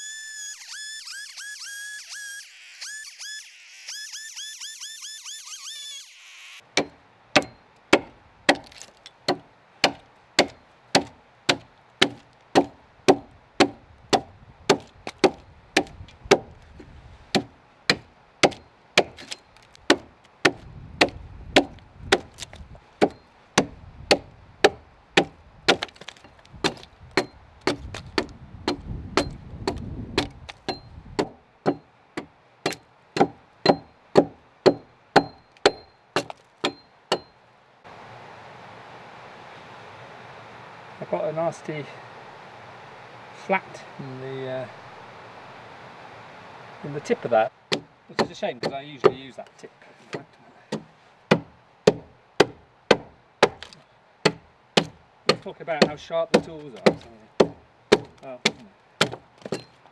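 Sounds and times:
axe chopping into log: 6.8 - 16.5, 17.3 - 37.3, 47.7 - 49.2, 50.1 - 59.7
wood chips cracking: 8.5 - 9.2, 25.7 - 26.9.

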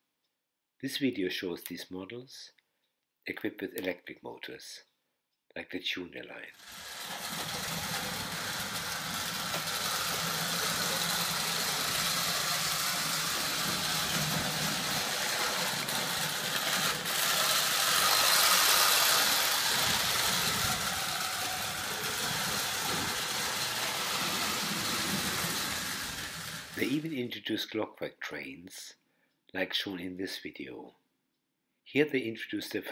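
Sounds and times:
toy train motor whirring: 6.5 - 27.3.

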